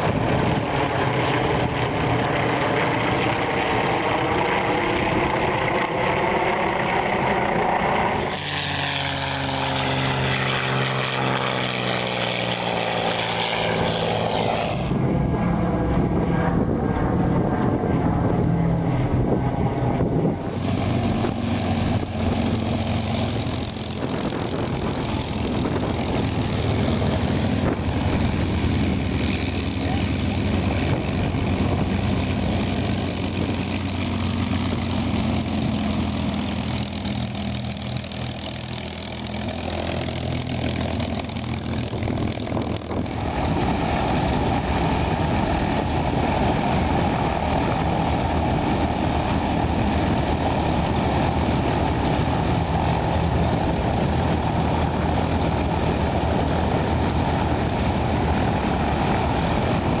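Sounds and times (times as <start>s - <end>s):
light aircraft engines taxiing: 0.0s - 60.0s
propeller aircraft engine humming: 0.0s - 60.0s.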